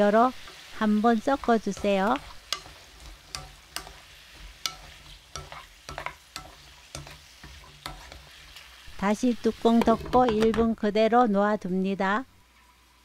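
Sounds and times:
faint sizzle: 0.0 - 13.0
spatula clacking against pan: 1.3 - 8.7.

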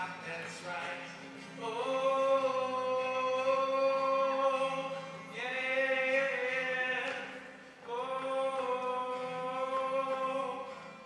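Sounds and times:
acoustic guitar: 0.0 - 11.0.

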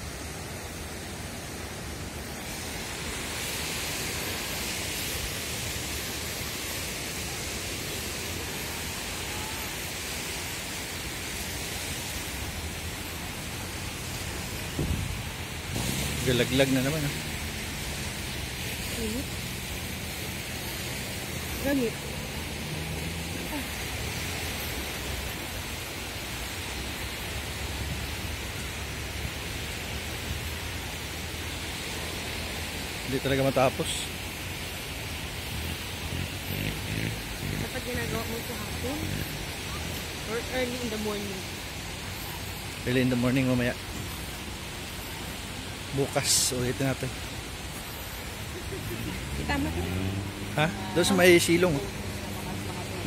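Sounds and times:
wind blowing across microphone: 0.0 - 16.3
beach ambience hiss: 0.0 - 53.0.

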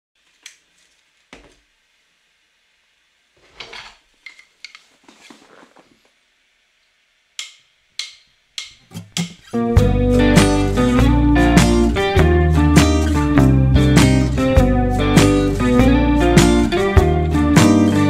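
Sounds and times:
paper rustling: 4.8 - 6.1
sharp taps and clicks: 7.4 - 9.5.

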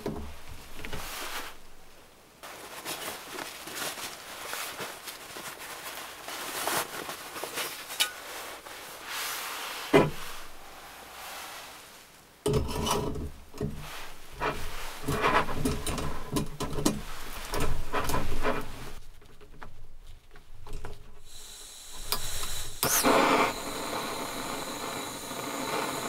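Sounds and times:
fabric sack rustling: 0.3 - 12.2.

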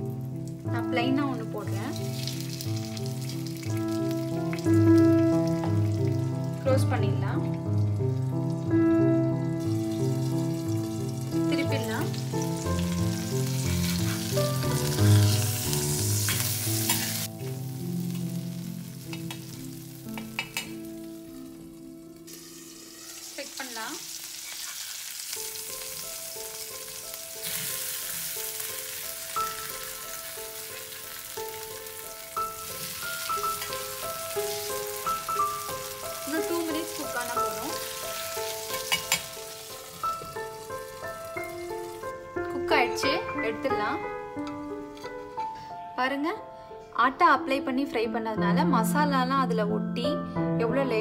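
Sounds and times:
fish sizzling in oil: 0.0 - 43.2
soft background music: 0.0 - 51.0
spatula and lid knocks: 20.1 - 20.8, 38.7 - 39.3.

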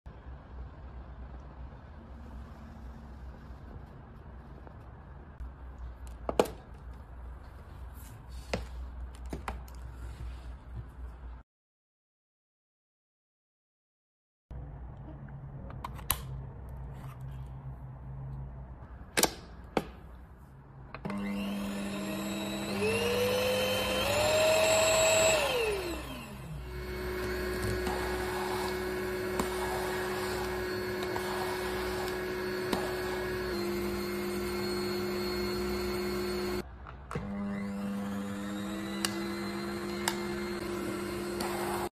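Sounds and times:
vacuum motor whining: 21.0 - 36.6, 37.2 - 41.9.

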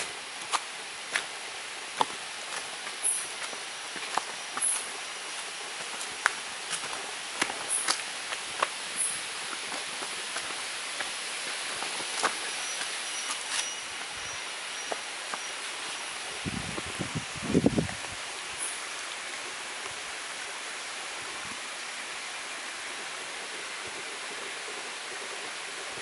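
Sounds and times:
jungle background hiss: 0.0 - 26.0
footsteps on dry leaves: 2.0 - 13.8.

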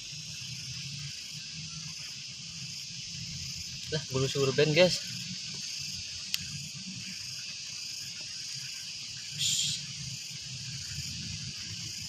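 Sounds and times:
crickets chirping: 0.0 - 12.0
insect rasp: 0.0 - 12.0.

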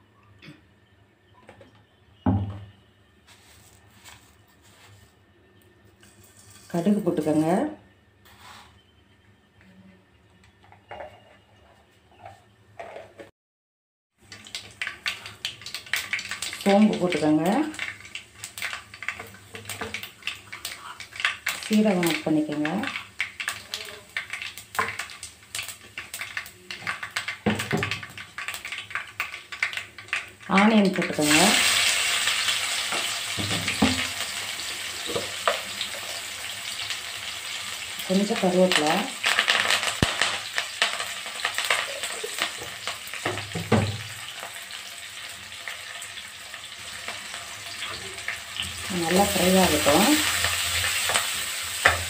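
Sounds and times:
seeds crackling in hot oil: 14.2 - 52.0
curry leaves crackling pops: 38.7 - 43.2.

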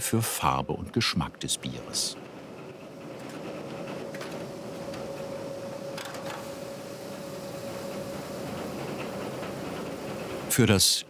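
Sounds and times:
mill mechanical hum: 0.0 - 11.0
thin constant whine: 0.0 - 11.0.

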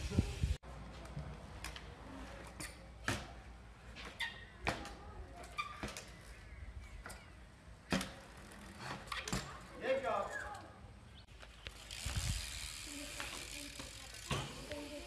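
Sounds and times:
bike knocking on concrete: 11.4 - 15.0.

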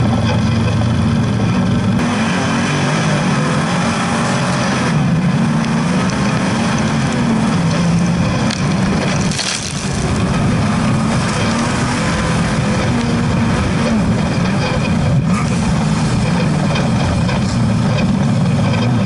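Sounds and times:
buggy engine revving hard: 0.0 - 19.0
dirt and stones clattering: 6.1 - 13.2.

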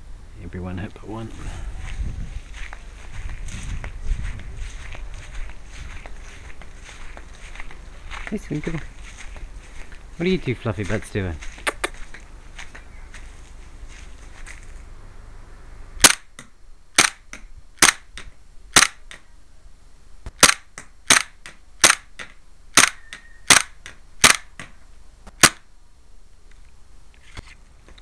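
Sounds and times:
airsoft pistol shots: 16.0 - 16.4, 17.0 - 18.1, 18.7 - 19.1, 20.4 - 24.6, 25.4 - 25.7.

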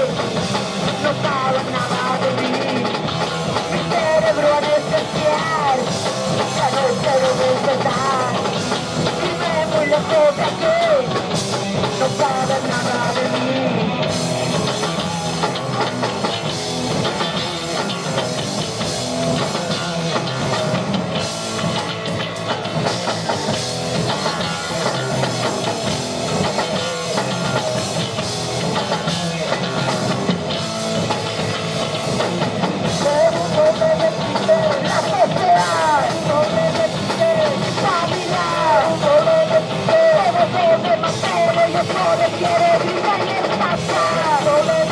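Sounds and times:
person singing: 0.0 - 16.0, 32.8 - 44.9
rock band playing: 0.0 - 44.9.

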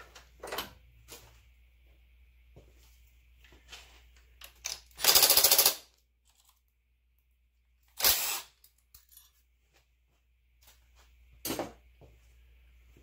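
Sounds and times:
rapid mechanical rattling: 5.0 - 5.8.

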